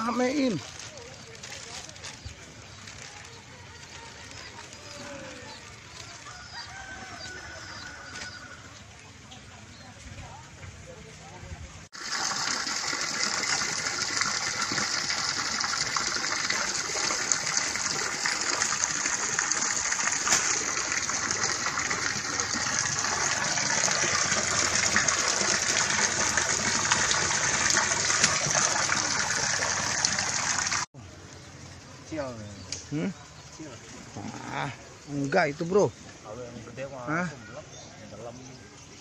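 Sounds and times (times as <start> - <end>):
water jet splashing into pool: 12.0 - 30.9.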